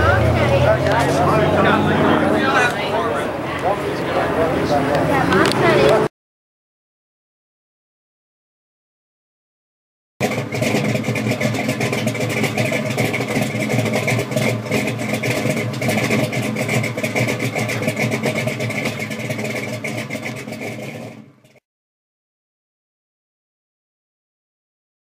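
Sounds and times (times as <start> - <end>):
car engine running loud: 0.0 - 6.1, 10.2 - 21.6.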